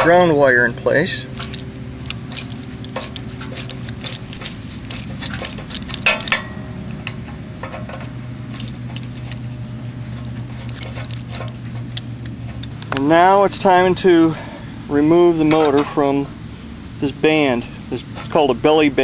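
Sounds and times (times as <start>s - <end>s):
steady low hum: 0.0s - 19.0s
socket wrench ratcheting: 1.4s - 6.4s.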